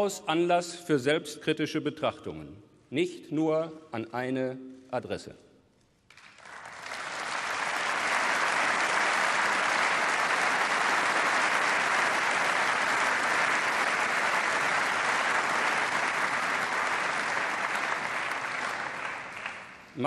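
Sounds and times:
crowd applause: 0:06.1 - 0:20.0.

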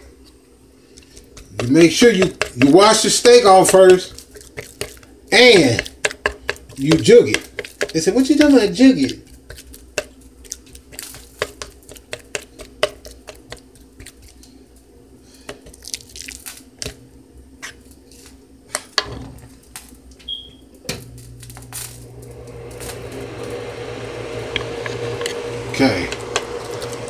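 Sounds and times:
fork tapping on cutting board: 0:01.4 - 0:10.1, 0:10.8 - 0:14.2.

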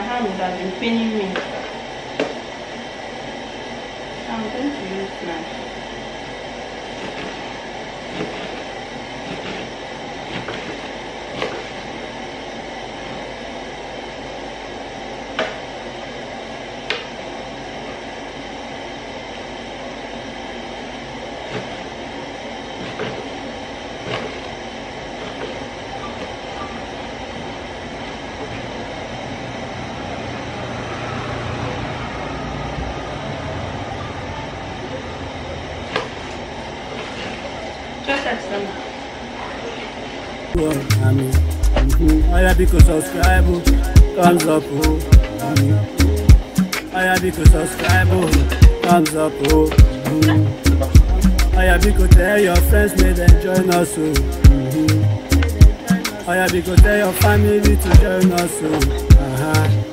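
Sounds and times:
steady background rush: 0:40.6 - 0:59.9.

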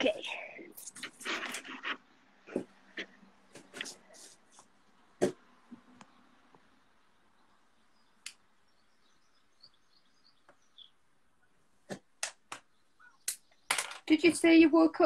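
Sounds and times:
high bird chirps: 0:07.4 - 0:11.5, 0:12.6 - 0:13.7.

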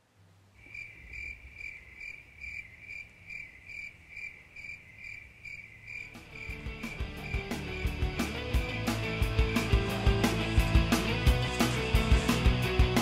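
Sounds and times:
cricket chirping: 0:00.6 - 0:09.7
music: 0:06.1 - 0:13.0.

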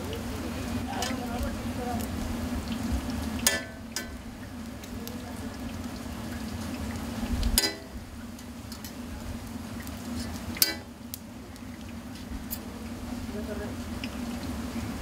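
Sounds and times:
food deep-frying in oil: 0:00.0 - 0:15.0
metal utensil clinking on pan: 0:03.4 - 0:04.2, 0:07.6 - 0:07.9, 0:10.6 - 0:10.9.

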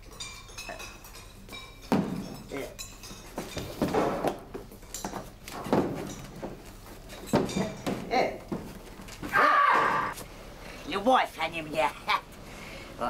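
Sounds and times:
cutlery and dishes clinking: 0:00.0 - 0:08.2.

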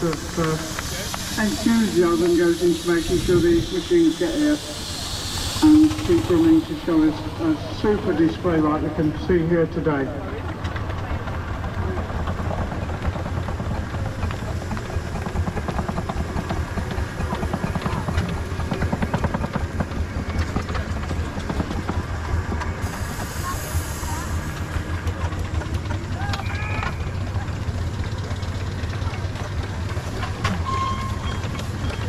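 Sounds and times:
steam hiss: 0:00.0 - 0:09.2, 0:13.0 - 0:27.3
steam engine exhaust chuffs: 0:00.0 - 0:09.8, 0:10.5 - 0:32.0.

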